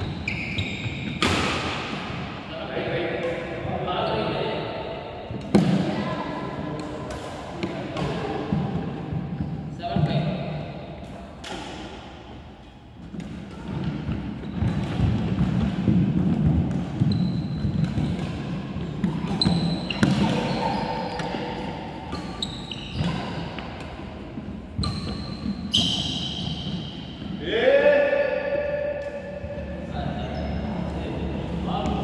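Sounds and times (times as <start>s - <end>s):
shoes squeaking on floor: 0.0s - 1.3s, 13.5s - 15.2s, 17.0s - 27.4s, 30.1s - 31.1s
racket hitting shuttlecock: 1.0s - 2.4s, 6.7s - 9.0s, 11.0s - 12.2s, 13.0s - 27.4s.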